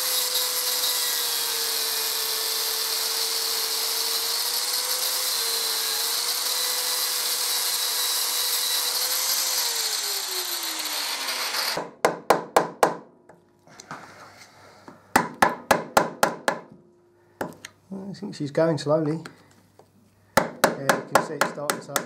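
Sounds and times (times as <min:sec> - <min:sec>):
angle grinder grinding metal: 0:00.0 - 0:11.8.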